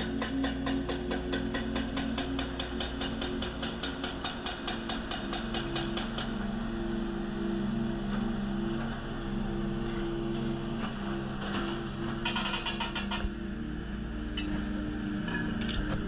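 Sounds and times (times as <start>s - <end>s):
rapid hydraulic hammering: 0.0s - 6.7s, 10.4s - 13.4s
diesel engine and hydraulics droning: 0.0s - 16.0s.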